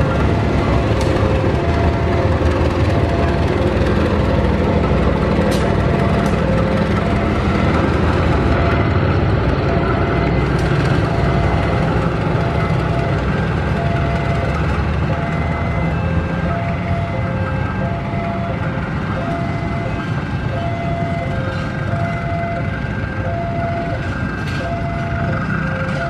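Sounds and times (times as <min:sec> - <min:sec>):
locomotive engine rumble: 0:00.0 - 0:26.0
train coaches rolling on track: 0:00.0 - 0:26.0.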